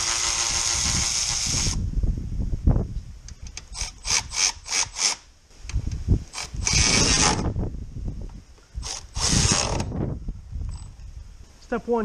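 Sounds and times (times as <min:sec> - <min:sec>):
cordless electric ratchet running: 0:00.0 - 0:01.8, 0:06.3 - 0:07.5, 0:08.8 - 0:10.0.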